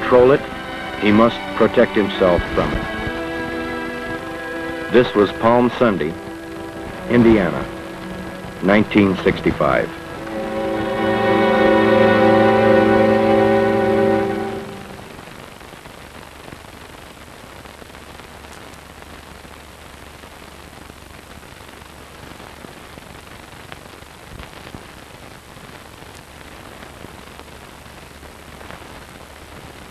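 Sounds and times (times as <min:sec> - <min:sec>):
closing music: 0:00.0 - 0:15.4
low hum: 0:00.0 - 0:15.4
film soundtrack hiss: 0:00.0 - 0:29.9
faint clicks and crackles: 0:15.0 - 0:29.9.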